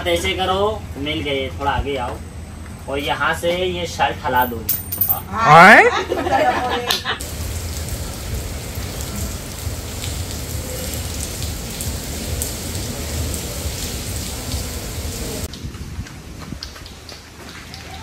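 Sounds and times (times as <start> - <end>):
person speaking: 4.4 - 5.9
steady rain falling: 6.4 - 18.0.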